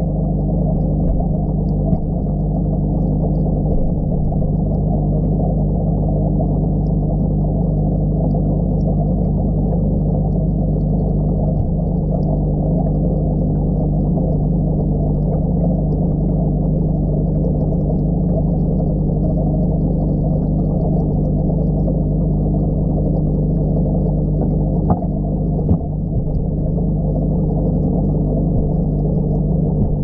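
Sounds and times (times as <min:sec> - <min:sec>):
aquarium air pump bubbling: 0:00.0 - 0:30.0
short knocks: 0:24.9 - 0:26.7, 0:28.6 - 0:28.8, 0:29.7 - 0:30.0.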